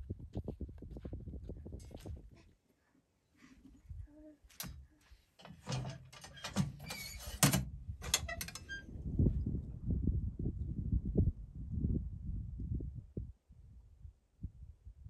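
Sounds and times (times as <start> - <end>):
metal scrapes and clicks: 5.4 - 8.8
stove door clanking: 5.4 - 8.8.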